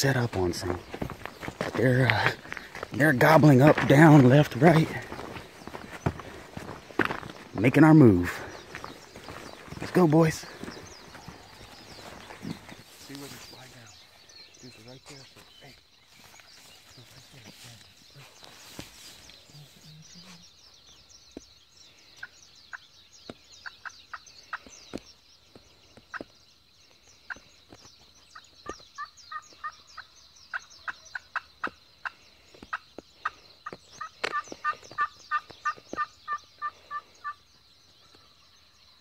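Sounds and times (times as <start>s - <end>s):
high-pitched chirping chorus: 0.0s - 39.0s
turkey call clucks and yelps: 34.0s - 37.4s.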